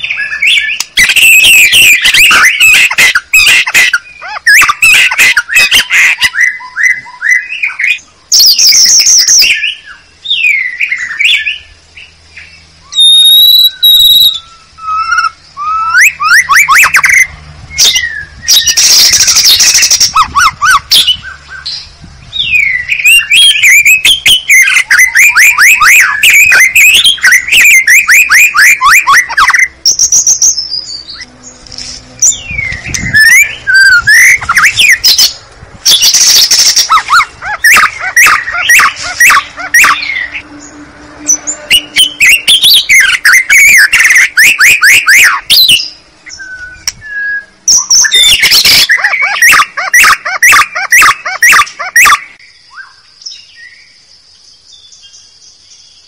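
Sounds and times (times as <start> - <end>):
harsh bird calls: 0.0 - 56.0
songbird whistling song: 0.0 - 56.0.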